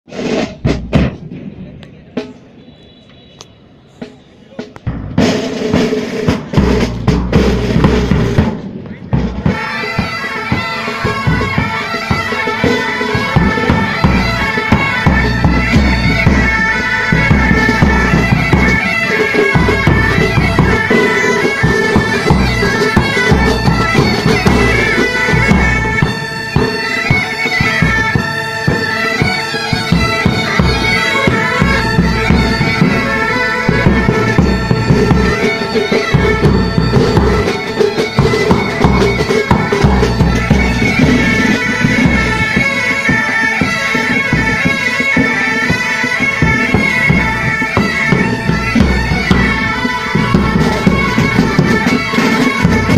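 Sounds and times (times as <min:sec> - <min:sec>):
snare tenor and bass drums: 0:00.1 - 0:52.9
bagpipes playing: 0:09.4 - 0:52.9.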